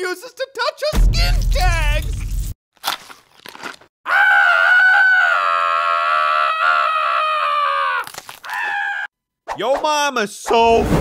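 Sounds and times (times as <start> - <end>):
cartoon high-pitched wail: 4.1 - 9.1.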